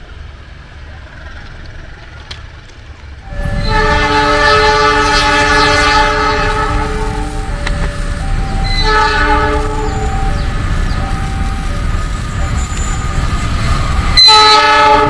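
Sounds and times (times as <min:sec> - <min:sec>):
train low rumble: 0:00.0 - 0:15.0
locomotive air horn: 0:03.2 - 0:15.0.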